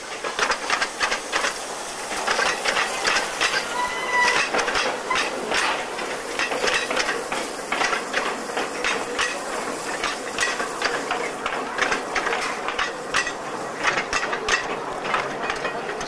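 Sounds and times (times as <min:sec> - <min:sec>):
railway wagons rolling on track: 0:00.0 - 0:16.0
metallic clanks and knocks: 0:02.3 - 0:16.0.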